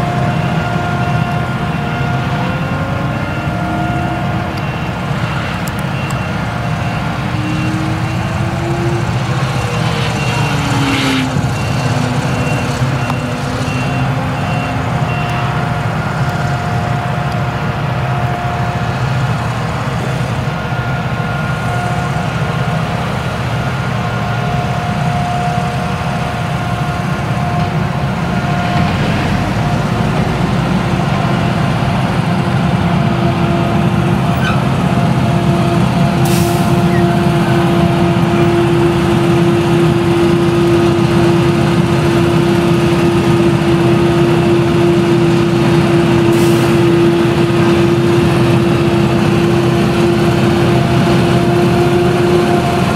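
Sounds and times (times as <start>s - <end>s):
forage harvester engine droning: 0.0s - 52.9s.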